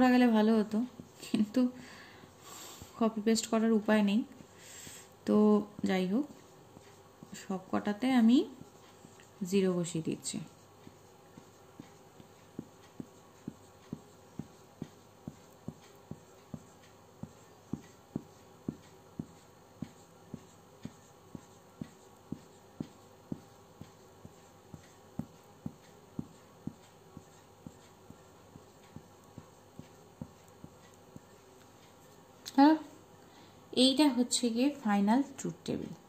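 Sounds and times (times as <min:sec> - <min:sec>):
marker pen writing on paper: 0:04.2 - 0:32.2.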